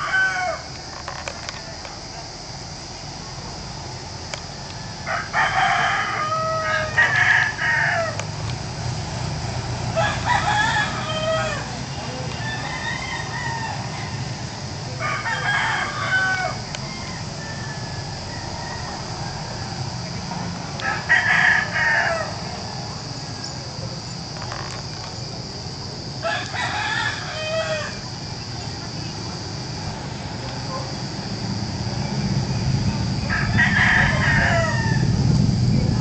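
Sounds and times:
rooster crowing: 0:00.0 - 0:00.8, 0:04.5 - 0:08.3, 0:09.8 - 0:20.2, 0:20.8 - 0:23.5, 0:26.2 - 0:28.2, 0:32.8 - 0:35.4.

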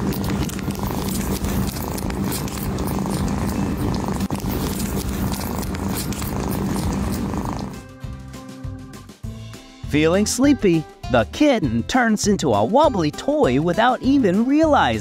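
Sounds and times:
cat purring: 0:00.0 - 0:07.8.

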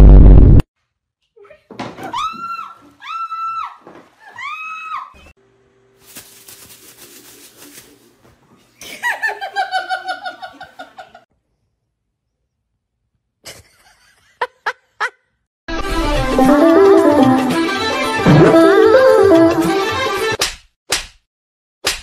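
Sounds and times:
person laughing: 0:13.4 - 0:15.2.

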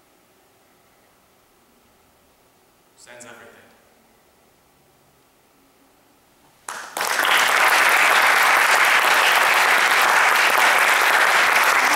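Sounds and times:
audience applause: 0:06.7 - 0:11.9.

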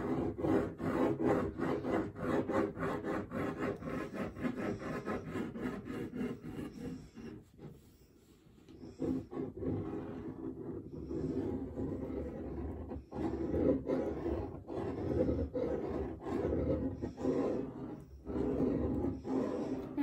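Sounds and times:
pen scribbling on paper: 0:00.0 - 0:20.0.

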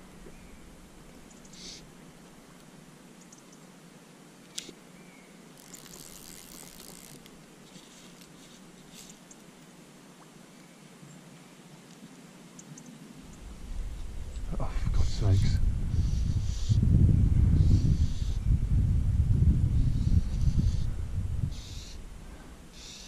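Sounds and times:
small ticks: 0:04.4 - 0:04.8, 0:05.5 - 0:09.7
fly line retrieved through fingers: 0:05.5 - 0:09.4.

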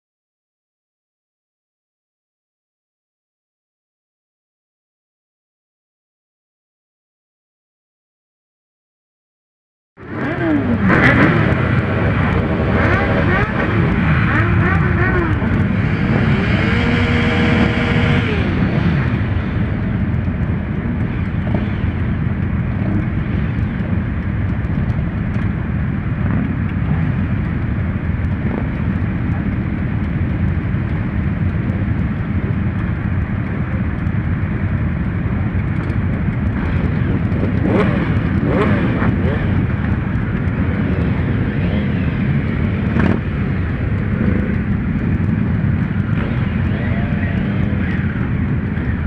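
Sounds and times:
motorcycle engine revving: 0:10.0 - 0:49.0
motorcycle engines idling: 0:10.0 - 0:49.0.

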